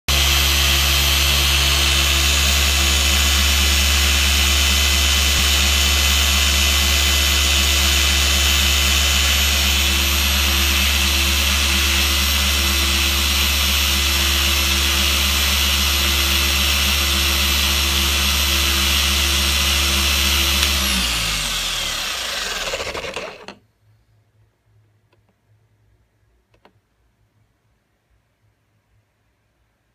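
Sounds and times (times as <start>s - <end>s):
orbital polisher running: 0.1s - 23.6s.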